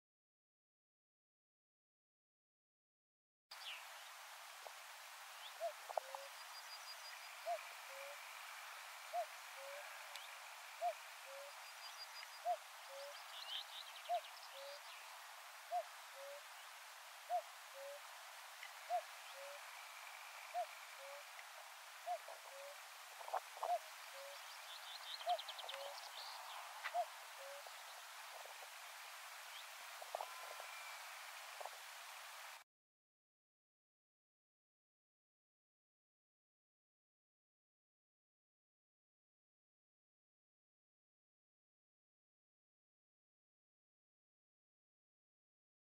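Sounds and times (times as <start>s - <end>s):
small birds chirping faintly: 3.5s - 32.6s
distant cuckoo calling: 5.4s - 15.0s, 15.7s - 16.6s, 17.2s - 28.8s, 29.5s - 31.8s.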